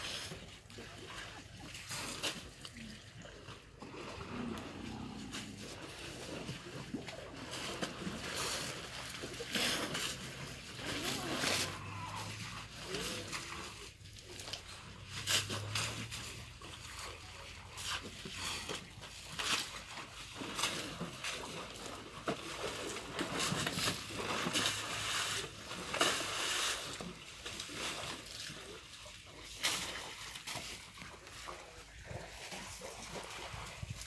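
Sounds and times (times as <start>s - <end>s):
elephants splashing in water: 0.0s - 34.0s.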